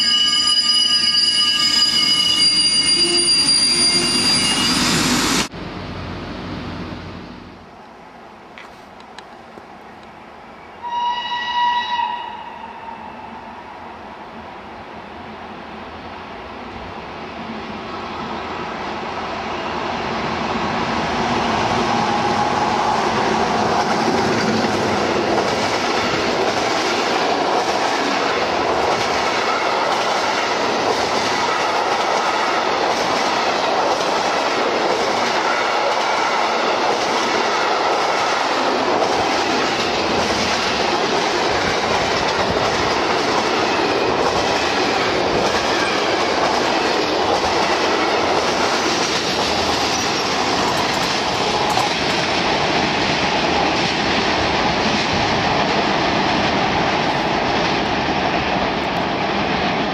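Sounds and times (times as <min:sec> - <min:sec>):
freight train passing: 0:00.0 - 0:59.9
train wheels on rails: 0:17.4 - 0:59.9.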